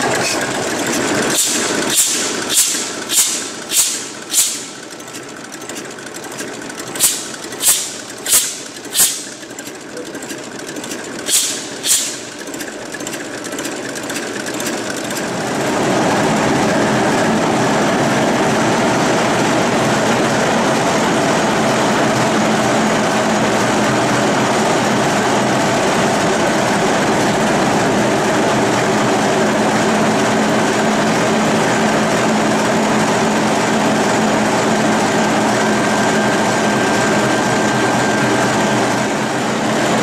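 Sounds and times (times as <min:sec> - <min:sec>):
diesel engine running: 0:00.0 - 0:40.0
sharp hissing puffs: 0:01.3 - 0:04.8, 0:07.0 - 0:09.4, 0:11.3 - 0:12.4.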